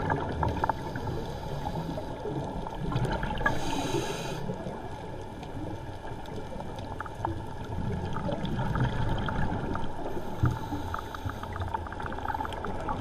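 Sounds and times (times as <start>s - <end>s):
underwater bubbling: 0.0s - 13.0s
diver breathing through regulator: 0.5s - 2.4s, 3.4s - 4.7s, 10.0s - 12.7s.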